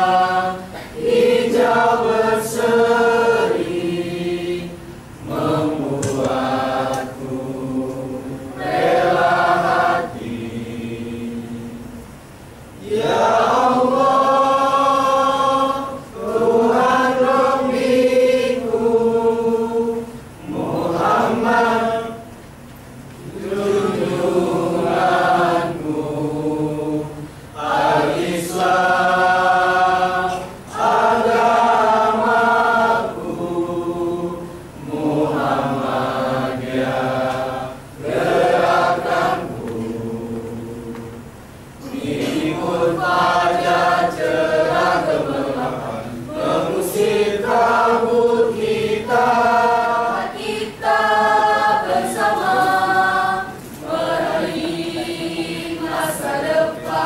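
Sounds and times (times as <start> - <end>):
choir singing: 0.0 - 11.9, 12.8 - 22.3, 23.2 - 57.0.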